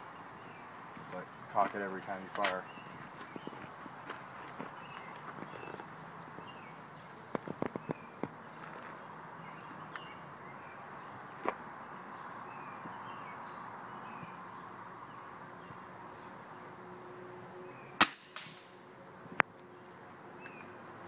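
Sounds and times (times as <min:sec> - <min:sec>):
air rifle shot crack: 0:18.0 - 0:18.7.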